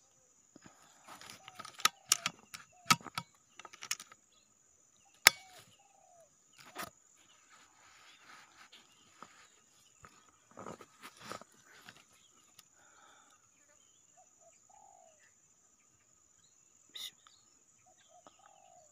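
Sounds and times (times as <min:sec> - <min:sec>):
faint clicks and rustles: 0:00.6 - 0:04.2, 0:06.6 - 0:12.7.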